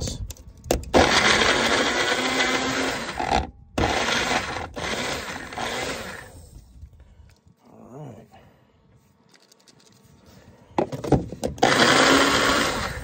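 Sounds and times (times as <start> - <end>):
blender chopping: 1.0 - 6.3, 11.6 - 13.0.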